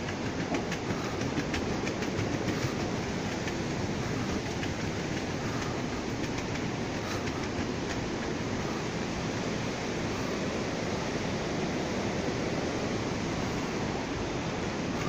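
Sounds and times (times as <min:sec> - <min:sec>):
footsteps on wooden boardwalk: 0:00.0 - 0:11.6.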